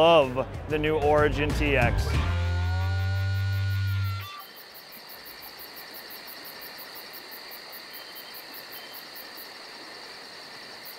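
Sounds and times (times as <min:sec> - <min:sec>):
steady high drone: 0:02.1 - 0:04.4
insects chirping: 0:02.5 - 0:10.9.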